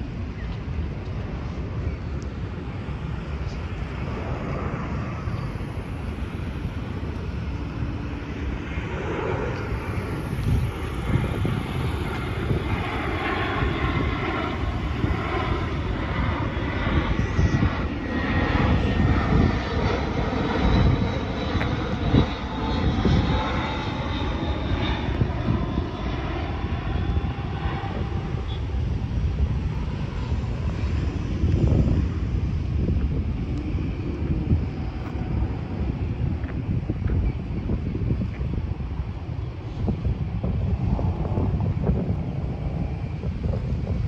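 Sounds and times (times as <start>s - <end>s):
jet plane passing overhead: 0.0s - 44.0s.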